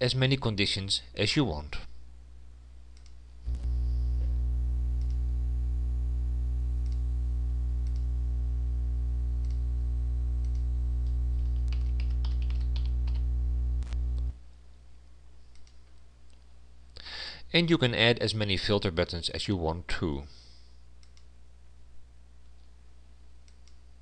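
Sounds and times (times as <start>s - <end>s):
steady low hum: 0.0s - 17.0s
mouse clicks: 3.0s - 3.2s, 15.5s - 16.0s, 21.0s - 21.3s
computer keyboard typing: 11.4s - 13.4s.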